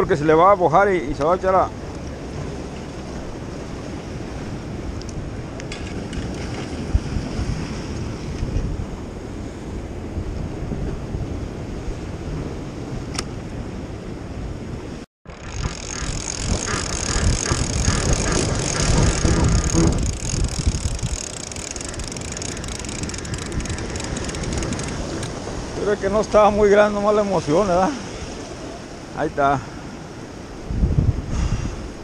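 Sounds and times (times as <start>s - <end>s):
wind buffeting microphone: 0.0s - 29.1s, 29.9s - 32.0s
surf washing against rocks: 15.3s - 32.0s.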